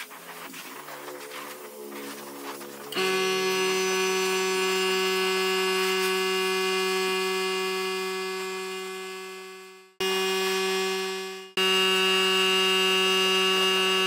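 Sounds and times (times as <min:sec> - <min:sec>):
steady electric hum: 0:01.1 - 0:14.0.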